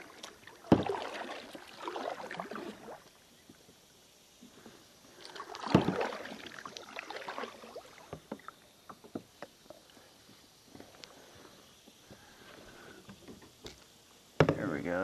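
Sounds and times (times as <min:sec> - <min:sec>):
water splash: 0:00.0 - 0:03.1, 0:05.2 - 0:08.4
paddle knocking on kayak: 0:00.7 - 0:01.0, 0:05.7 - 0:06.1, 0:14.4 - 0:14.7.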